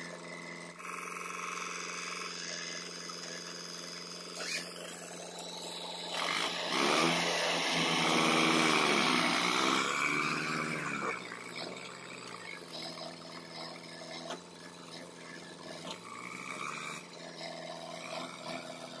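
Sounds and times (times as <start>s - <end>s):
tractor diesel engine revving: 0.0s - 19.0s.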